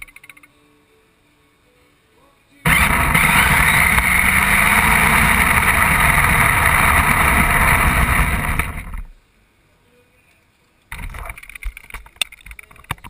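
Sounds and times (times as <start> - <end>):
rc car motor whine: 2.7 - 9.1
wheels rolling on concrete: 2.7 - 9.2.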